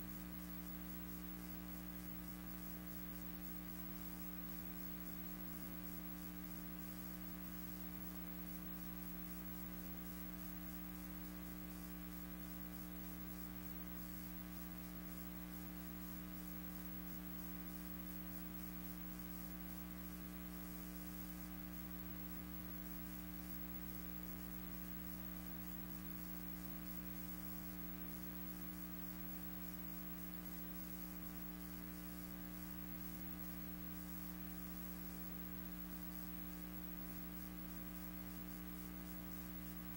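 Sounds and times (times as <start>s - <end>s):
constant hiss: 0.0s - 39.9s
electrical hum: 0.0s - 39.9s.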